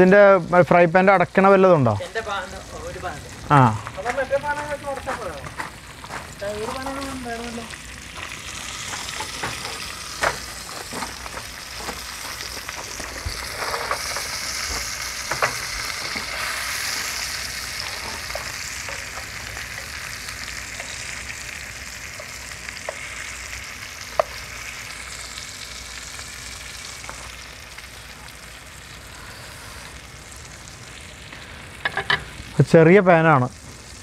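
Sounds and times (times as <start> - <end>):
fish sizzling in hot oil: 0.0 - 34.0.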